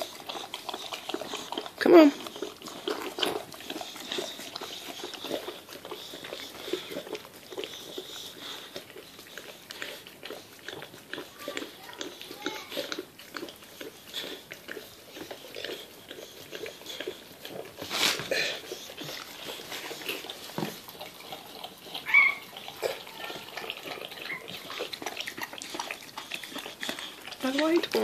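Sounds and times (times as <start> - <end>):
dog licking wet smacking: 0.0 - 28.0
puppy high squeak: 22.0 - 22.4.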